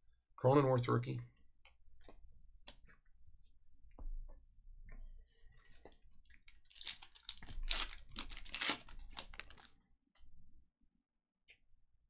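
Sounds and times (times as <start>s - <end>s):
card packaging crinkling: 6.5s - 9.8s.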